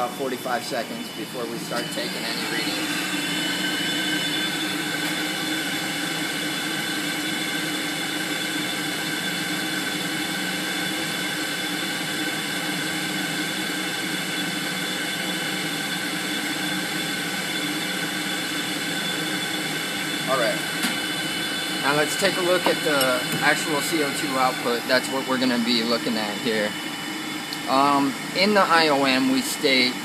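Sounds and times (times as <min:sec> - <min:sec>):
steady tones: 0:00.0 - 0:05.0, 0:18.0 - 0:30.0
burners and blower rushing: 0:00.0 - 0:30.0.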